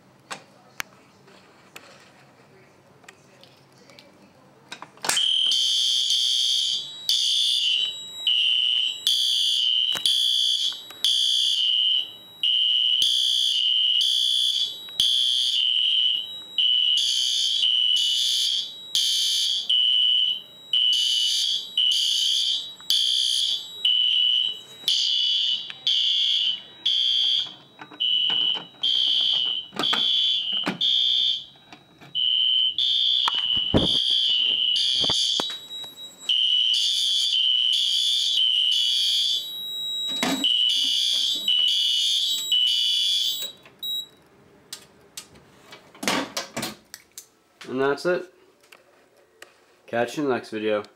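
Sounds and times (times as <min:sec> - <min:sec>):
fire alarm horn blasts: 0:05.2 - 0:44.1.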